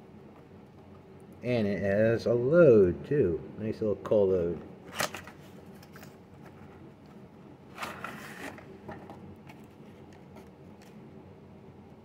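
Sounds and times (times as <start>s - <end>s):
tray scraping rustle: 7.7s - 9.1s.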